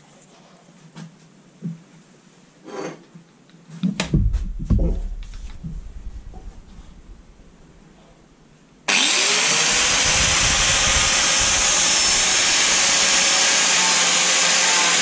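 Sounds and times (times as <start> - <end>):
angle grinder whining: 8.9 - 15.0.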